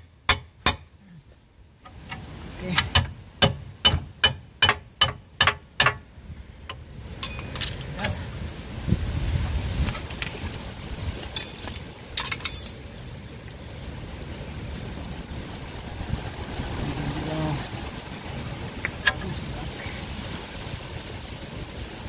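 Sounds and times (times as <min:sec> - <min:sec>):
hand tools clinking on metal: 0:07.2 - 0:08.2, 0:11.3 - 0:12.8.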